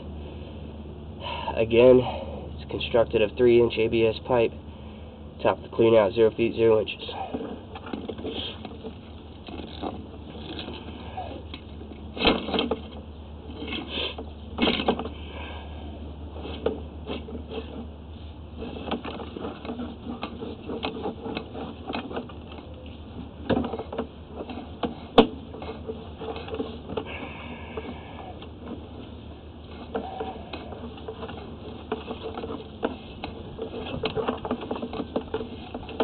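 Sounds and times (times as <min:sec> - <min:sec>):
steady low hum: 0:00.0 - 0:36.0
push cable clicking and rattling: 0:29.7 - 0:36.0.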